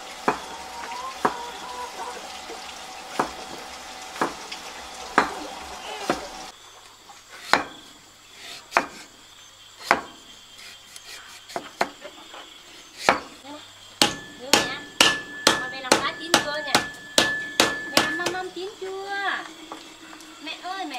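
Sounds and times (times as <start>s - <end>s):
food sizzling in a pan: 0.0s - 6.6s, 14.0s - 20.9s
utensil knocking against pan: 3.1s - 4.4s, 14.0s - 18.5s.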